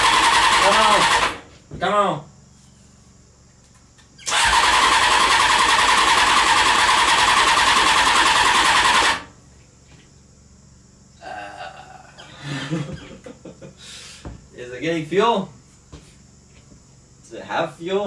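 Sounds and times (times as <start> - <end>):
motorcycle starter cranking engine: 0.0 - 1.4, 4.1 - 9.3.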